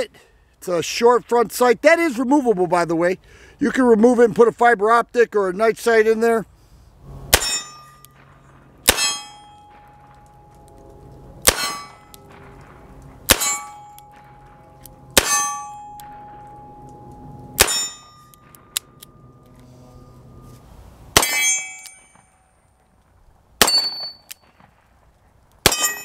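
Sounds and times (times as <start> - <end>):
steel target ringing clang: 7.3 - 10.5, 11.4 - 12.4, 13.3 - 20.5, 21.2 - 22.6, 23.6 - 24.6, 25.6 - 26.0.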